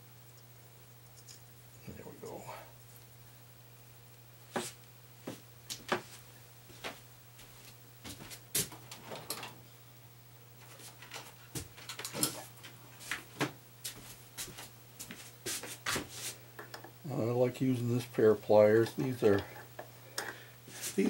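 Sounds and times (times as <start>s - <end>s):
steady low hum: 0.0s - 21.0s
footsteps on a shop floor: 4.5s - 8.8s, 13.0s - 16.4s.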